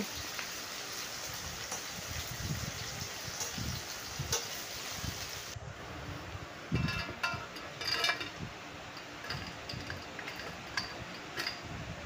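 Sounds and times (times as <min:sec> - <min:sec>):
wire skimmer clinking on metal: 0:06.7 - 0:11.8.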